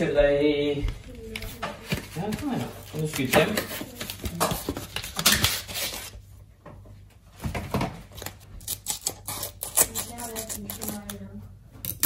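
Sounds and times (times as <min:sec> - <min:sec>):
plastic film crinkling: 0:01.3 - 0:06.1.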